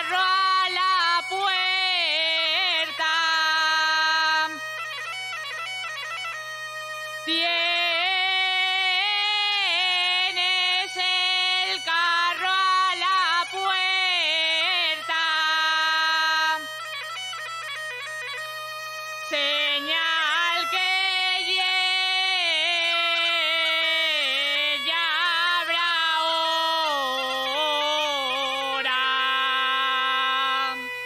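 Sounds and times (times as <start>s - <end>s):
girl singing into a microphone: 0.0s - 4.6s
bagpipe with drone: 0.0s - 31.0s.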